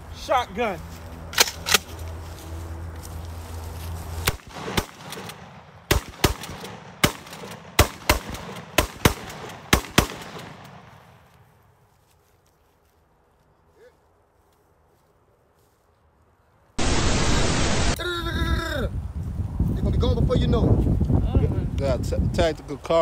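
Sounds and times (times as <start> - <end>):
shotgun shots: 4.3 - 11.1.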